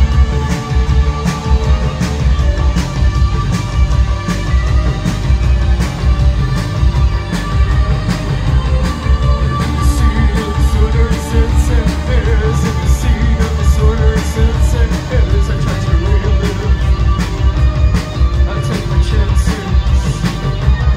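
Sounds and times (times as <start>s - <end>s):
drums keeping a steady beat: 0.0s - 20.9s
heavy bass guitar: 0.0s - 20.9s
person singing: 8.3s - 17.4s, 18.3s - 20.9s.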